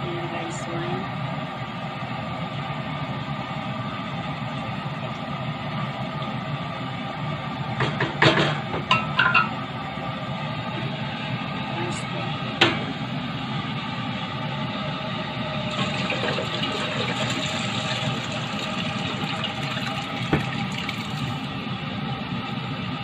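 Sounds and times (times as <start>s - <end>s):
liquid pouring into steel pot: 15.7s - 21.4s.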